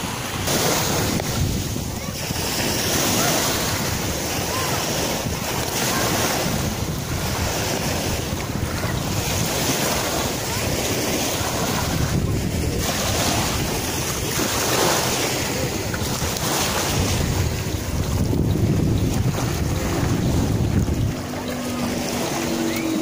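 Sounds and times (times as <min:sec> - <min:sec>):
small waves washing on sand: 0:00.0 - 0:23.0
wind buffeting microphone: 0:00.0 - 0:23.0.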